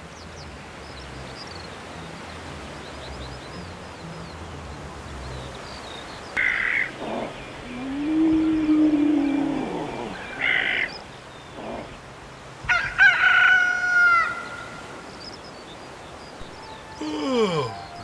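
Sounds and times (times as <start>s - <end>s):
rooster crowing: 12.7s - 14.8s.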